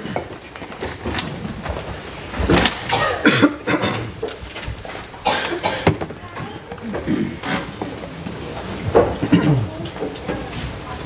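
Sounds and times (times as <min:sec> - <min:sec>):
people moving and sitting down: 0:00.0 - 0:11.0.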